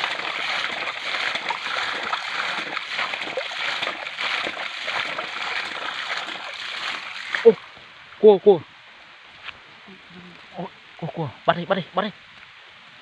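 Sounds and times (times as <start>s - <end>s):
muddy water splashing: 0.0s - 8.0s.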